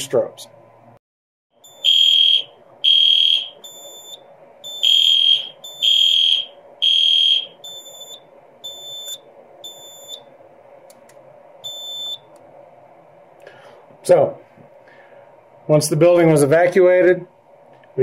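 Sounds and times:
alarm panel beeping: 0:01.6 - 0:10.2, 0:11.6 - 0:12.3
fire alarm horns pulsing: 0:01.6 - 0:10.2.

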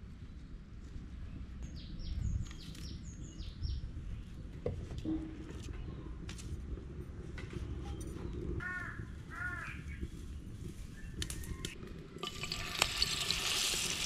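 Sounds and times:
low outdoor rumble: 0:00.0 - 0:14.0
small birds chirping: 0:00.1 - 0:04.6.

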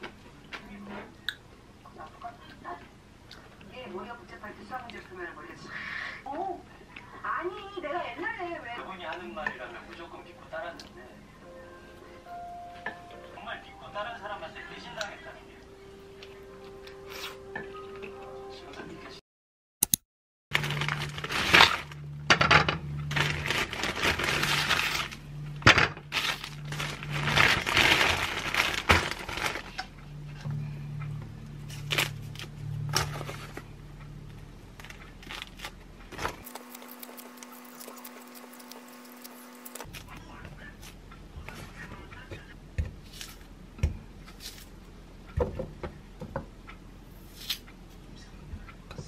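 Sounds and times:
plastic bag crinkling: 0:20.5 - 0:22.0, 0:23.0 - 0:25.2, 0:26.1 - 0:29.9, 0:34.8 - 0:39.9
citrus peel tearing: 0:36.4 - 0:40.2.

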